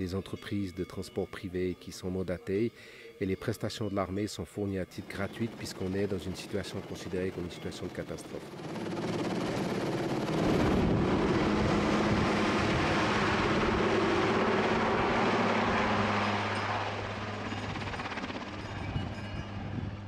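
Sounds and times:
helicopter rotor and turbines: 4.6s - 20.0s.

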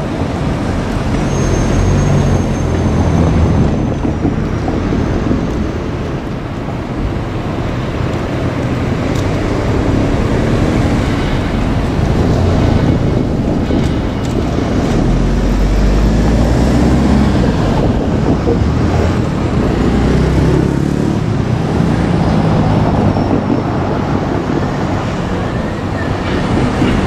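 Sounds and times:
train rolling over points: 0.0s - 27.0s.

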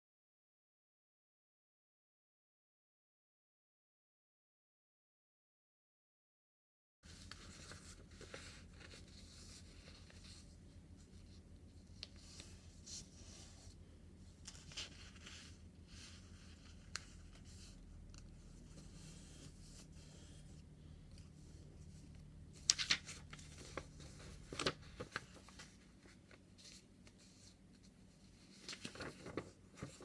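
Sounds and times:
paper rustling and folding: 7.0s - 30.0s.

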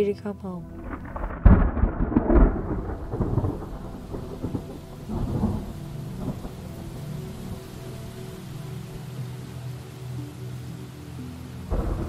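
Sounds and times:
steady rain: 0.6s - 12.0s
thunder crack and rumble: 0.7s - 6.7s, 11.7s - 12.0s.

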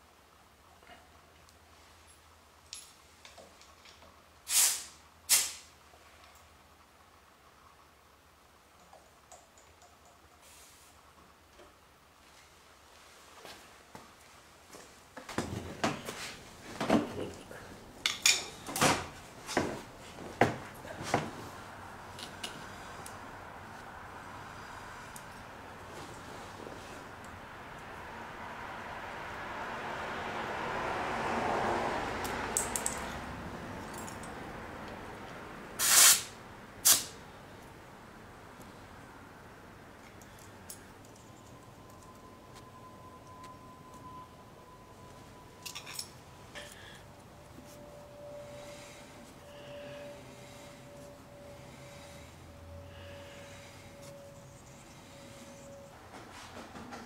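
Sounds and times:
air hissing from tire valve: 4.4s - 5.7s, 35.8s - 37.2s.

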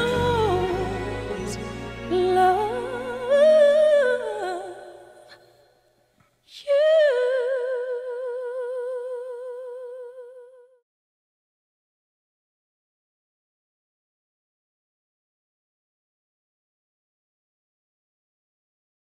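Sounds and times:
soft musical accompaniment: 0.0s - 5.2s.

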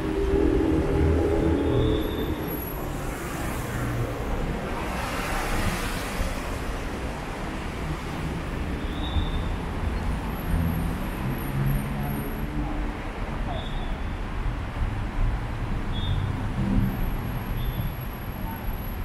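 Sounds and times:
vehicle passing: 0.0s - 8.4s
road traffic rumble: 0.0s - 19.0s.

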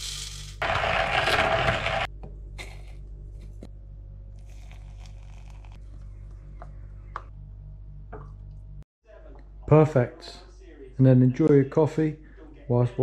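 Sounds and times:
low steady hum: 2.1s - 10.7s.

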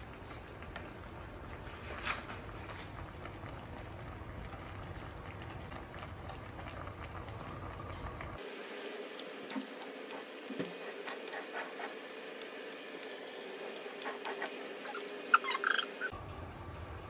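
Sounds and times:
food sizzling in a wok: 8.4s - 16.2s.

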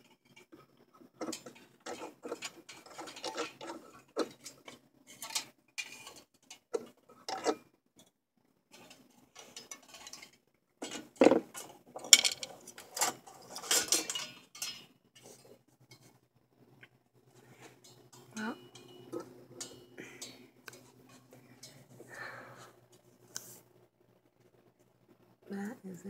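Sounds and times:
rubbing and scraping: 0.0s - 7.6s.

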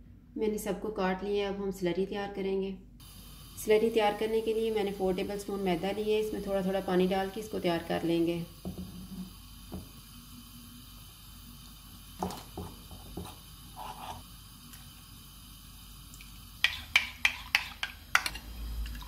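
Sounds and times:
metal spoon stirring in bowl: 16.6s - 19.0s.

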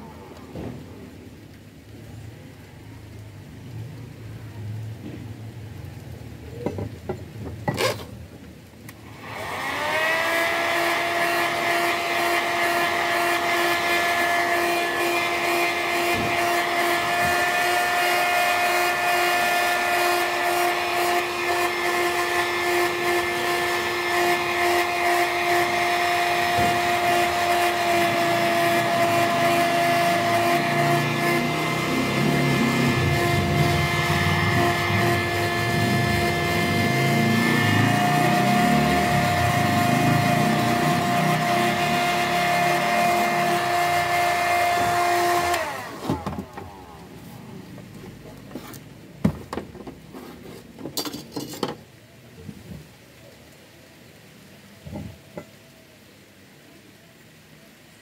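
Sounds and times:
heat gun fan whine: 9.0s - 47.3s.

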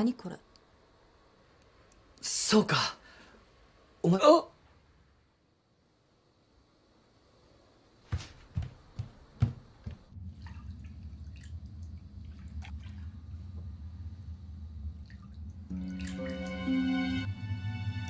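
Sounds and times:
water dripping in a bathtub: 10.0s - 17.2s
low steady drone: 10.1s - 18.0s
film music with sustained tones: 10.2s - 18.0s.

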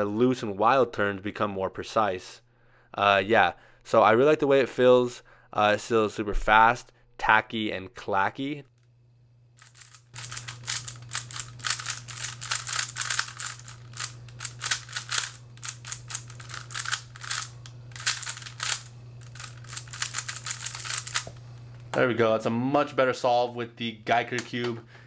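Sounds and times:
puzzle cube clacking: 9.6s - 21.3s.

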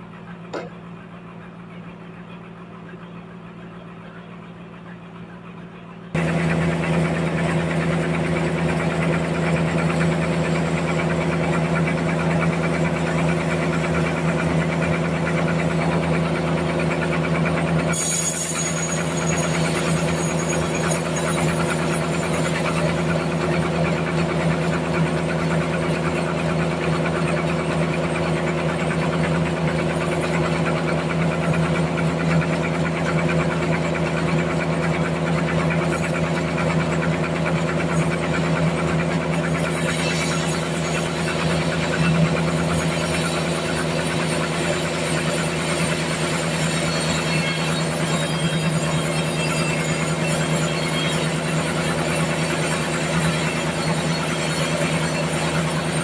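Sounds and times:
band sawmill humming: 0.0s - 56.0s.

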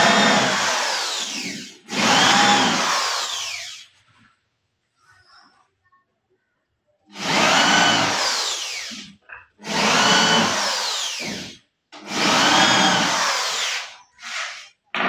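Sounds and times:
power drill whining: 0.0s - 3.9s, 7.1s - 14.6s.

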